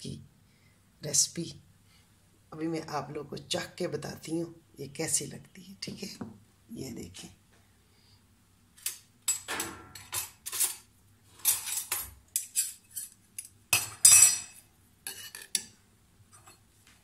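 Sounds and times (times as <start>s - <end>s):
spoon scraping clay bowls: 8.9s - 16.7s.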